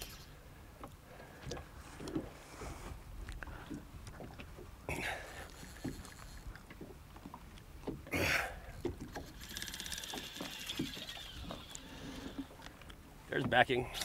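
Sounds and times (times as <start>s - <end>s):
fishing reel drag buzzing: 0.0s - 0.4s, 5.0s - 6.6s, 8.8s - 12.7s
water slapping boat hull: 0.8s - 14.0s.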